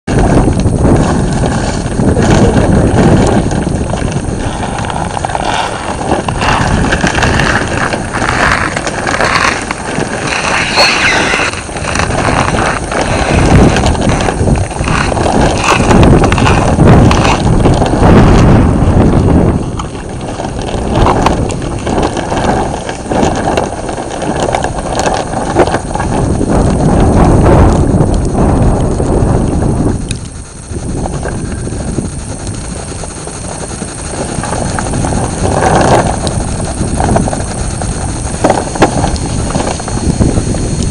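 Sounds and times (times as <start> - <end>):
uneven rumbling noise: 0.1 - 40.9.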